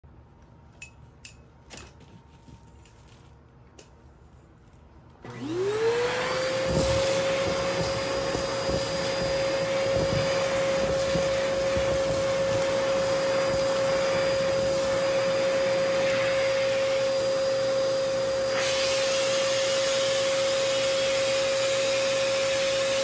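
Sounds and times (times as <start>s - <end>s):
vacuum cleaner motor whine: 5.2s - 23.0s.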